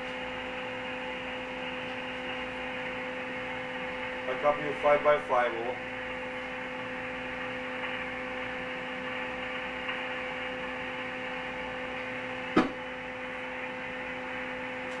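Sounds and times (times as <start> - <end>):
steady hum: 0.0 - 15.0
radio static hiss: 4.2 - 10.6.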